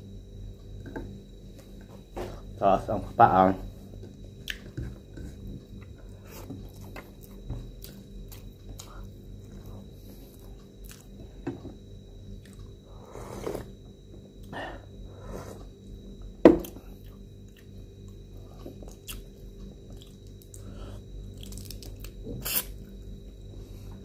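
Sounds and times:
slurp from a soup bowl: 0:13.1 - 0:13.7
chewing and crunchy bites: 0:16.7 - 0:22.9.

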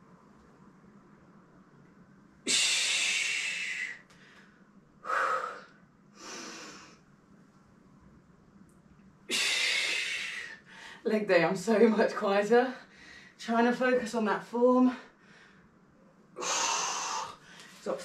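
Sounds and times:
woman breathing hard: 0:02.5 - 0:07.0, 0:09.3 - 0:11.1, 0:16.4 - 0:17.8.

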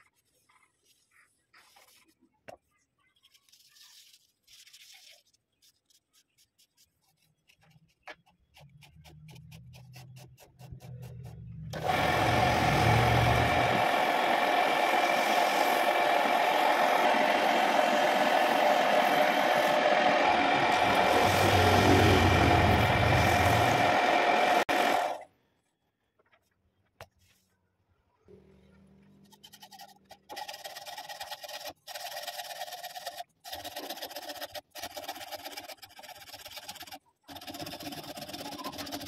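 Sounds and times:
lathe motor whine: 0:11.8 - 0:25.2.

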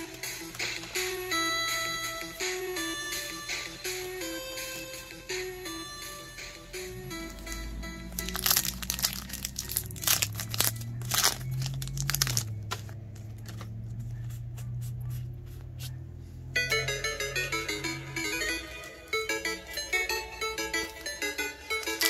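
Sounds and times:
background music with low drone: 0:00.0 - 0:22.0
card packaging crinkling and tearing: 0:08.2 - 0:13.7, 0:21.8 - 0:22.0
plucked string melody: 0:16.6 - 0:22.0.

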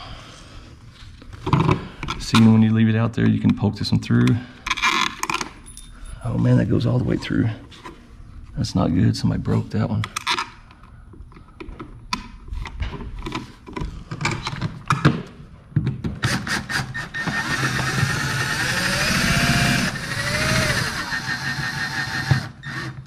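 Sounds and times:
cordless drill whining: 0:16.3 - 0:23.0.

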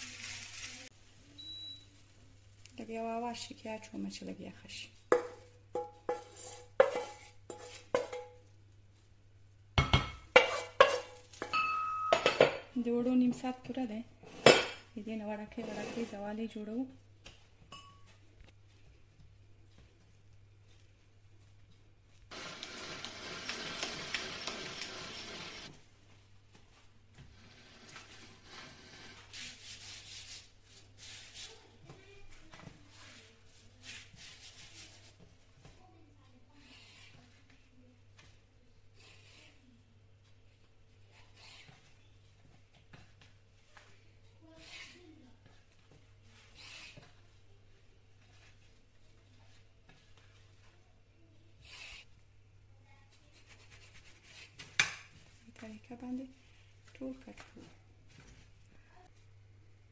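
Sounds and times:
dough sheet rustling: 0:00.0 - 0:01.0, 0:19.7 - 0:35.9
wooden spoon knocking on pan: 0:05.1 - 0:08.4, 0:09.8 - 0:12.6.

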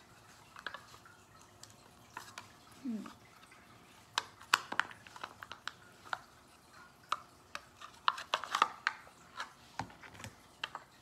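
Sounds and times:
plastic lid clicks and crackles: 0:07.8 - 0:10.8.

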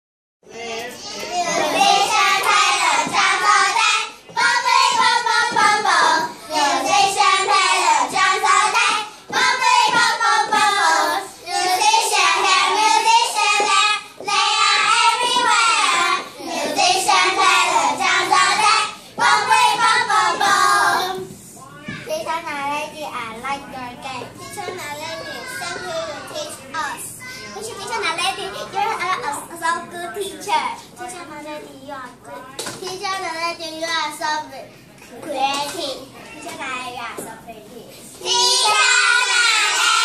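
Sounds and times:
children singing in unison: 0:01.2 - 0:21.3, 0:38.2 - 0:40.0.

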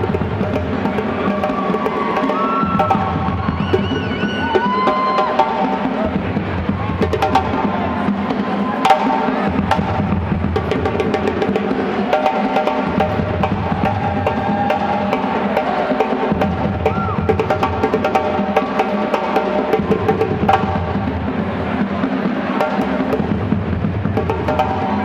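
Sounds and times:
rapid hand drum strikes: 0:00.0 - 0:25.0.

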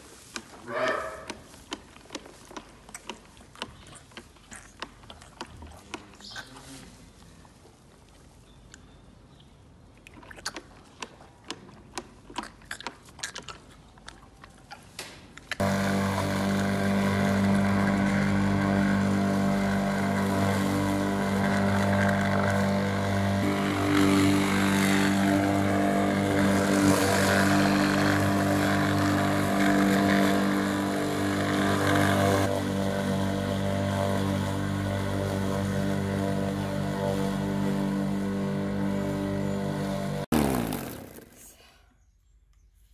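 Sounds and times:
electric lawn mower humming: 0:15.6 - 0:41.4.

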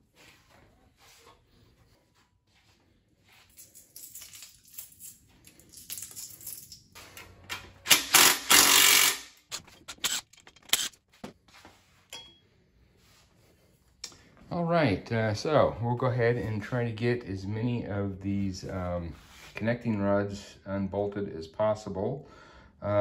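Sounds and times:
metal parts clinking: 0:03.5 - 0:07.3, 0:07.9 - 0:11.0
cordless power driver bursts: 0:07.9 - 0:09.3.

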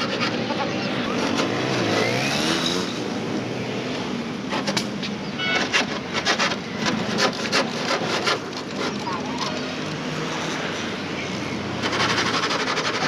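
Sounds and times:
vehicle engine revving: 0:00.3 - 0:03.6
hacksaw on sheet metal: 0:05.6 - 0:09.0, 0:11.8 - 0:13.0.

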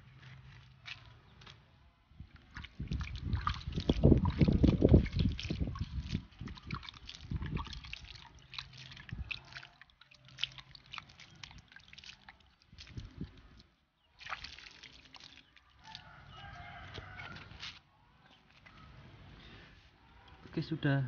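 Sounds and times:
water splashing onto soil: 0:02.3 - 0:17.9.

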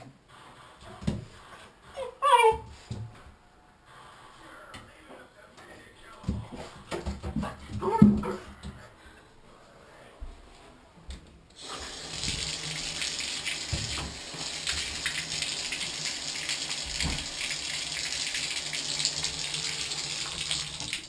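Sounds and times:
water running into bathtub: 0:11.6 - 0:21.0.

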